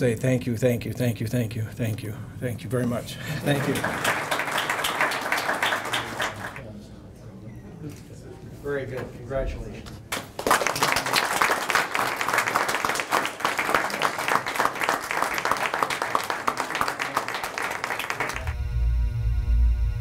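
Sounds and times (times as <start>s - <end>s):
people applauding: 3.3s - 6.7s, 10.1s - 18.6s.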